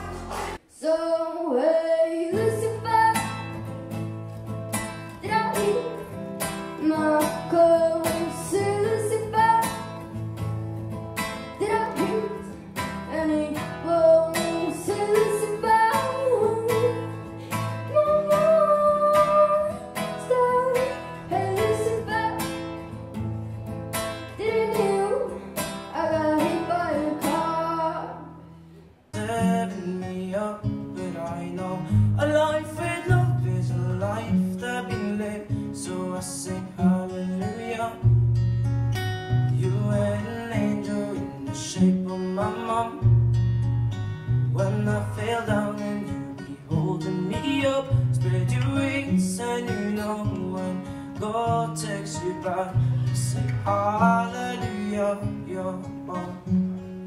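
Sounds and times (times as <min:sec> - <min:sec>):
strummed acoustic guitar: 0:00.0 - 0:00.6, 0:02.2 - 0:57.0
woman singing: 0:00.0 - 0:03.7, 0:05.1 - 0:10.0, 0:11.5 - 0:22.6, 0:24.3 - 0:28.4.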